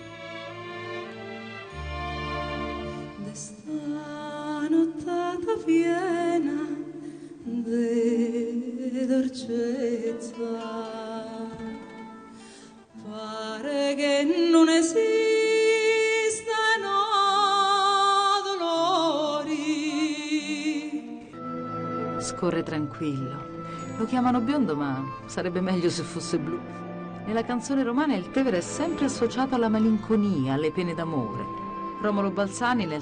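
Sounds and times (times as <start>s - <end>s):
instrumental accompaniment: 0.0s - 3.8s, 19.7s - 33.0s
woman singing with vibrato: 3.2s - 12.0s, 13.0s - 21.4s.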